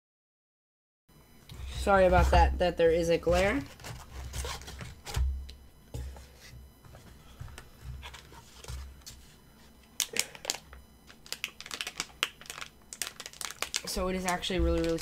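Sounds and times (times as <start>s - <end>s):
cardboard and plastic bag rustling: 1.6s - 5.3s, 7.8s - 9.7s, 11.2s - 15.0s.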